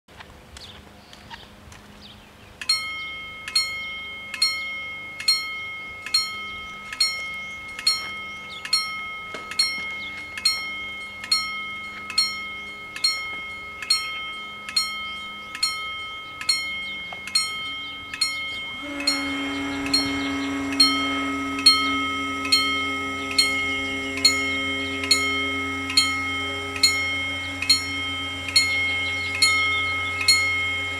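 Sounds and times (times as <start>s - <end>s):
barrier motor hum: 0.1s - 30.9s
level crossing warning bells: 2.6s - 30.9s.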